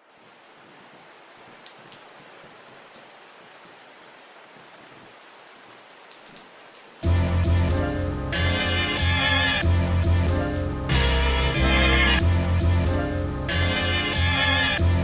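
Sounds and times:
rain-like noise: 0.0 - 15.0
loud music with deep bass: 7.0 - 15.0.

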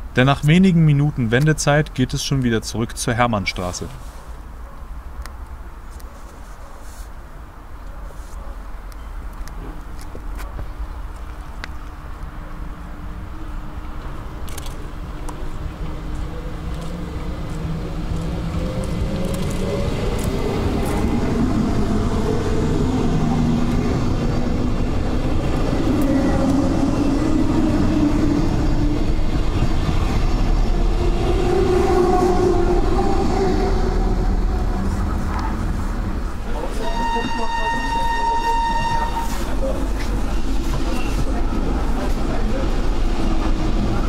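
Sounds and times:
train wheels rumbling: 14.0 - 44.0.

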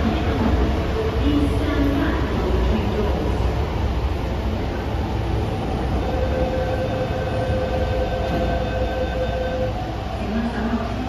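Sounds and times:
train rumble: 0.0 - 11.0
door-closing warning tone: 6.4 - 9.8.

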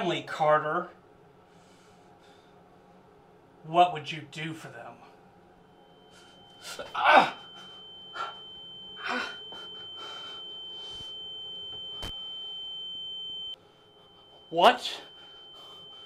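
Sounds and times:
high ringing tone: 5.2 - 16.0.

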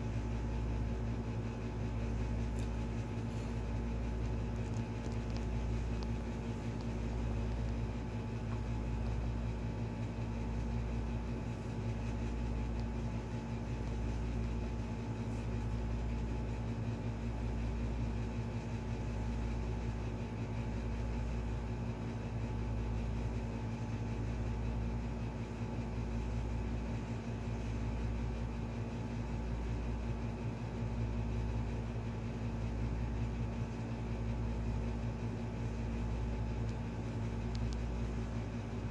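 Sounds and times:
steady mechanical hum: 0.0 - 38.9.

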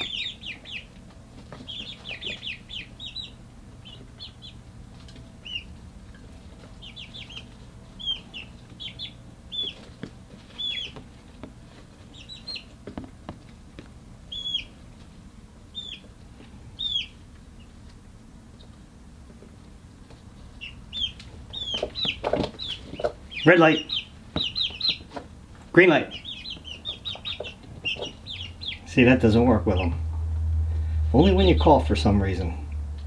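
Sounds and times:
chicks peeping: 0.0 - 32.7
faint low hum: 0.0 - 33.0.

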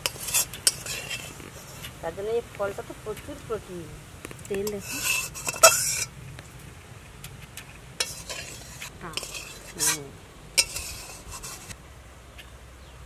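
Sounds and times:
metal spatula scraping a pan: 0.0 - 2.0, 4.6 - 6.1, 8.0 - 11.8.

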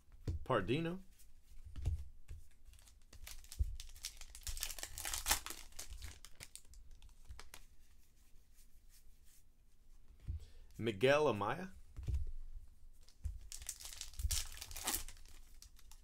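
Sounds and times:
foil wrapper tearing and crinkling: 2.8 - 7.6, 13.5 - 16.0.

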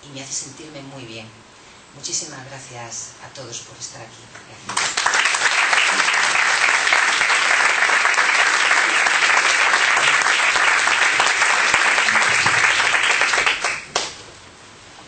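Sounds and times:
crowd applauding: 4.7 - 14.2.

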